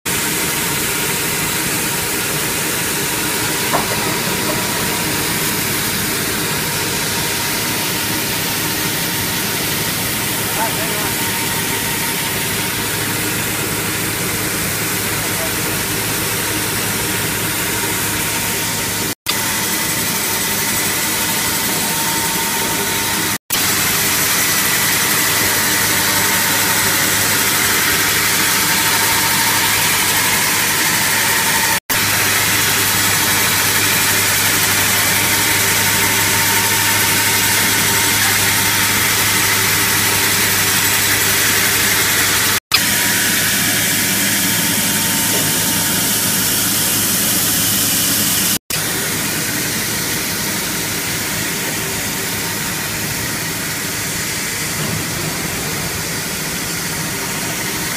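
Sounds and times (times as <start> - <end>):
band saw cutting log: 0.1 - 57.9
water spraying: 0.2 - 57.9
low motor hum: 0.8 - 46.2.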